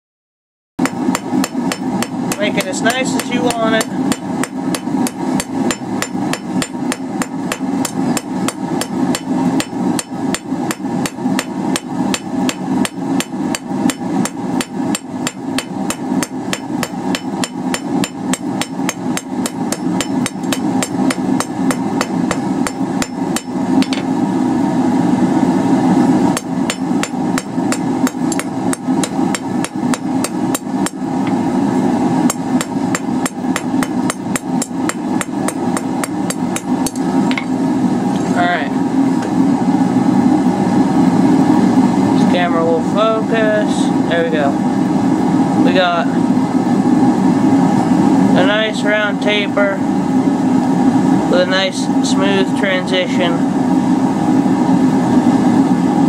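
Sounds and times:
hammer striking steel on anvil: 0.8s - 24.1s, 26.4s - 31.0s, 32.3s - 37.5s.

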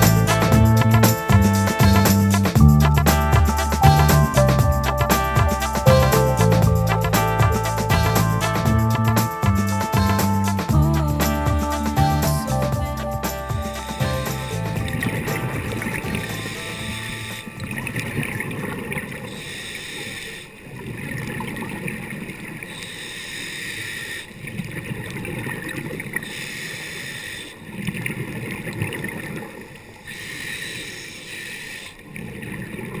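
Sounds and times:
regulator hissing inhale: 19.4s - 20.5s, 22.8s - 24.3s, 26.2s - 27.6s, 30.1s - 32.0s.

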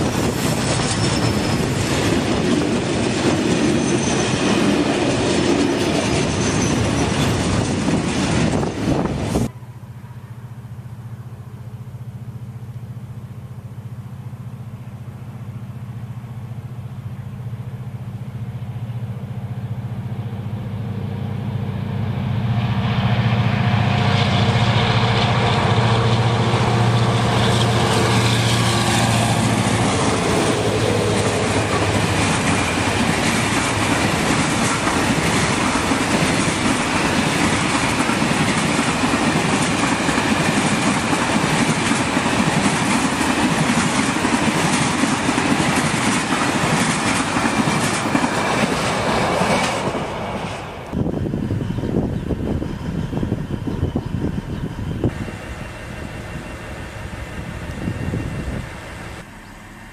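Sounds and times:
train wheels clattering on rails: 0.0s - 9.5s, 24.1s - 55.2s
locomotive humming: 0.0s - 59.9s
steady rushing noise: 20.5s - 59.9s.

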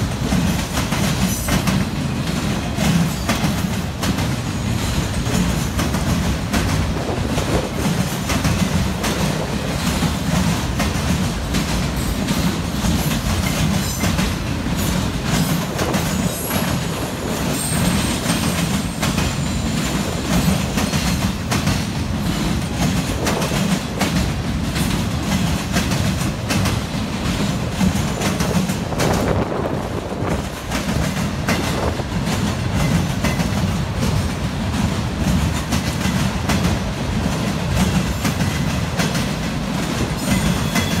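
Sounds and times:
train low rumble: 0.0s - 41.0s
train wheels clattering over rails: 0.0s - 41.0s
faint high wheel squeal: 40.2s - 41.0s.

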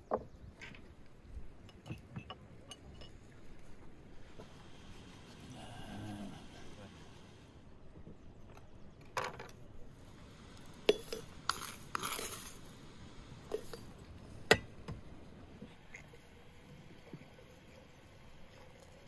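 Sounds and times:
tea leaves rustling: 10.2s - 14.1s.

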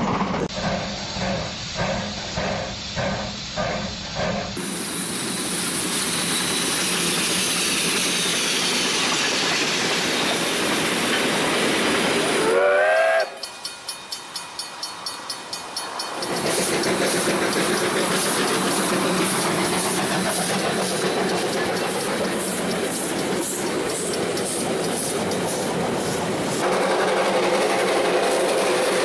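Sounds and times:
train wheels clatter: 0.0s - 12.4s, 13.2s - 29.0s
train running rush and hiss: 0.0s - 29.0s
train whistle rising in pitch: 12.4s - 13.5s.

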